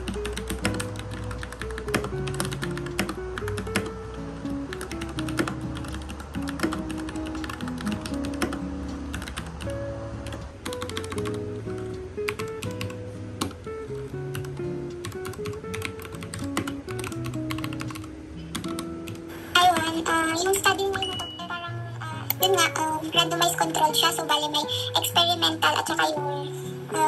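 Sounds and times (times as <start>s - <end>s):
mechanical keyboard typing: 0.0s - 4.0s, 4.7s - 9.6s, 10.2s - 11.4s, 14.3s - 21.3s
soft background music: 0.0s - 27.0s.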